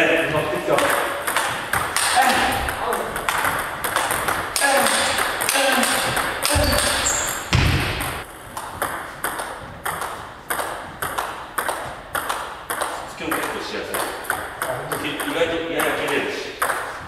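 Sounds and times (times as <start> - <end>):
table tennis ball clicking: 0.8 - 7.5
low thuds: 6.1 - 8.2.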